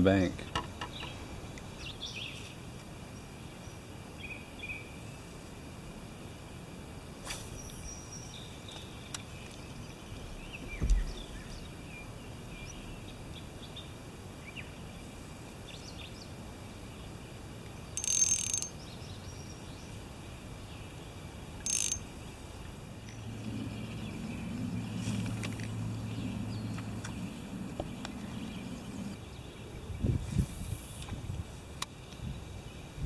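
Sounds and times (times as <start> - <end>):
river ambience: 0.0 - 30.0
short hissing bursts: 7.2 - 7.9, 30.2 - 31.1
low thump: 10.6 - 11.5.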